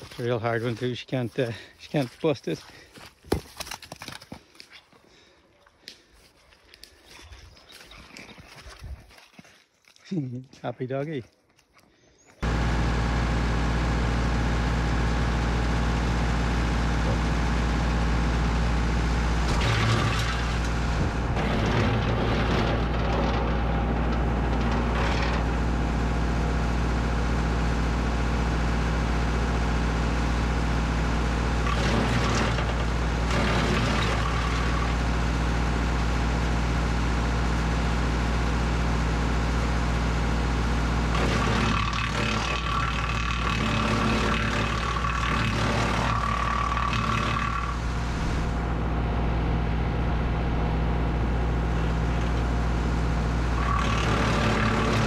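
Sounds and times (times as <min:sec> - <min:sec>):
tractor diesel engine running: 0:00.0 - 0:04.3, 0:12.4 - 0:55.0
wood chipper chipping branches: 0:12.4 - 0:48.9, 0:51.3 - 0:55.0.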